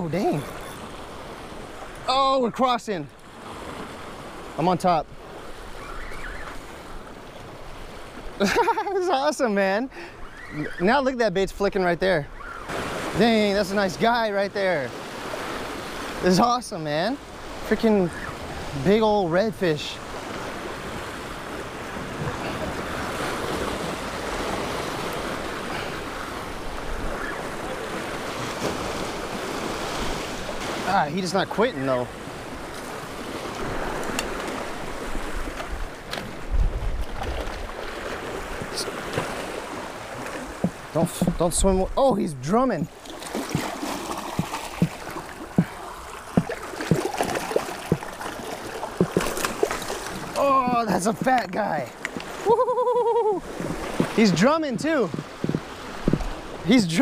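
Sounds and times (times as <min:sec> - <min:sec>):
surf washing over rocks: 0:10.9 - 0:57.0
fish drumming low knocks: 0:40.2 - 0:41.5, 0:43.1 - 0:52.4, 0:53.4 - 0:56.6
sea water washing over rocks: 0:42.8 - 0:52.5, 0:53.2 - 0:57.0.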